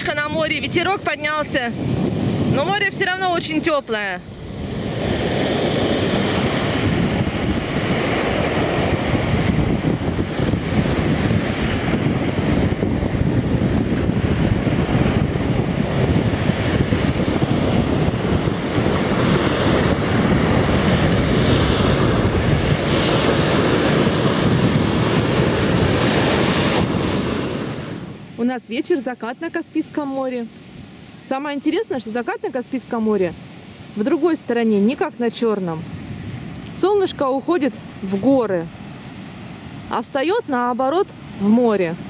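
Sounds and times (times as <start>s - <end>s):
surf breaking on beach: 0.0s - 28.5s
wind on microphone: 0.0s - 42.0s.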